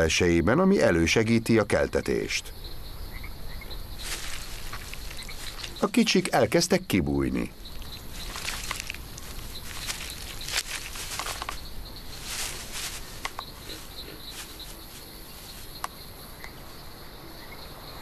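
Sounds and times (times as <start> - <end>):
high insect drone: 0.0 - 18.0
crackles of dry leaves and twigs: 3.2 - 17.5.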